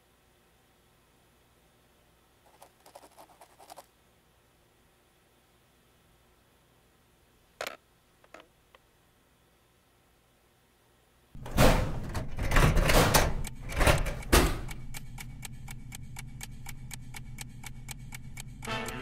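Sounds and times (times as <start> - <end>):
metal drawer sliding open: 11.4 - 14.6
low hum: 13.4 - 19.0
rapid even ticking: 13.4 - 19.0.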